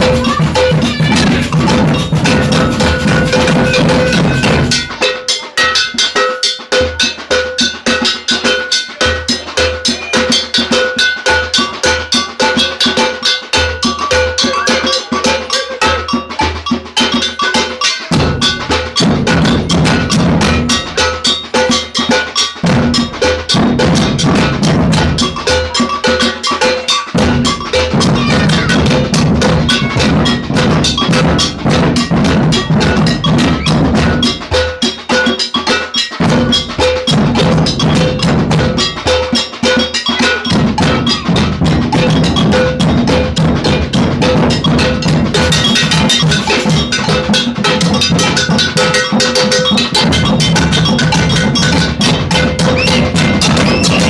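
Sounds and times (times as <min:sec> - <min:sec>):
bass drums: 0:00.0 - 0:05.0, 0:18.1 - 0:21.2, 0:22.6 - 0:26.2, 0:27.2 - 0:34.8, 0:36.2 - 0:54.0
agogo bells ringing: 0:00.0 - 0:54.0
snare drums: 0:00.0 - 0:54.0.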